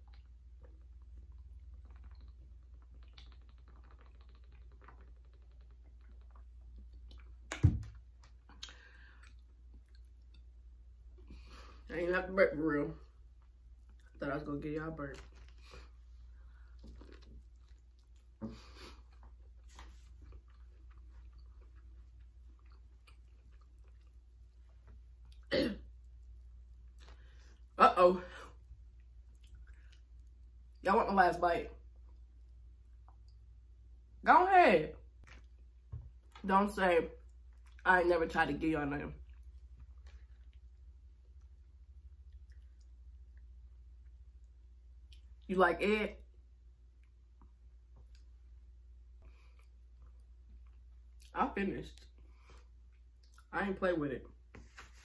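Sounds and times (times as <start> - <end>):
low room hum: 0.0 - 55.0
soft mouth clicks: 1.7 - 7.3, 8.5 - 10.4
close-up chewing: 15.3 - 27.8.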